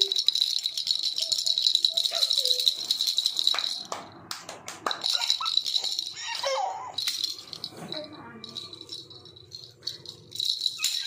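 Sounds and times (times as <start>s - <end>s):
plastic baby rattle shaken: 0.0s - 4.1s, 4.9s - 11.0s
baby whining cry: 6.2s - 7.1s.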